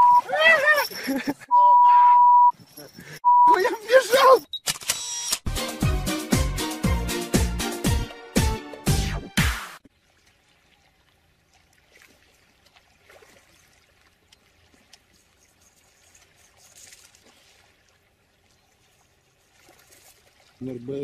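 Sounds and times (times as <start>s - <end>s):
loud music: 5.5s - 9.8s
water splashing and lapping: 9.8s - 21.0s.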